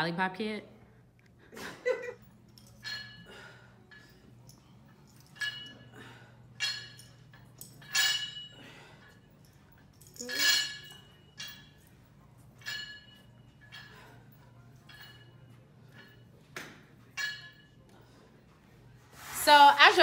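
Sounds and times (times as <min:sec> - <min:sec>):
steady low hum: 0:00.0 - 0:19.2
metal barbell clinking: 0:02.3 - 0:17.9.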